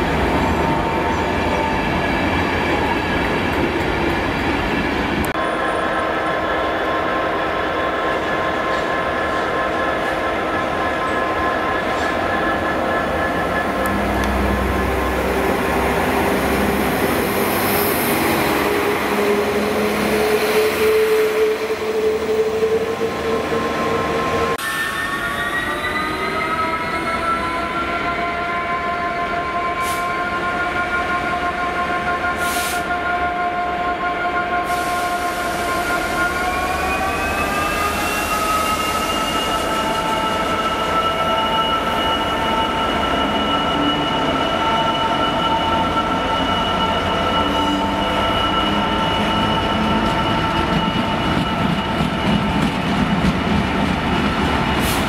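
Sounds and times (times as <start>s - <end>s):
train machinery drone: 0.0s - 33.0s
train whine rising in pitch: 5.3s - 33.0s, 34.2s - 53.1s.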